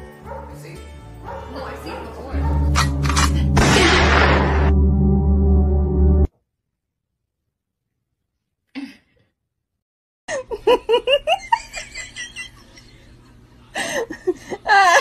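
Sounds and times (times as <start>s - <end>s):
person laughing: 10.3s - 15.0s.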